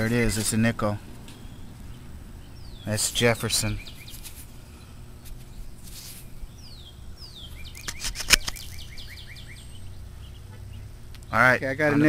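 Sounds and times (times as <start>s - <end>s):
songbird whistles and chirps: 5.5s - 10.9s
sharp click: 7.8s - 9.0s.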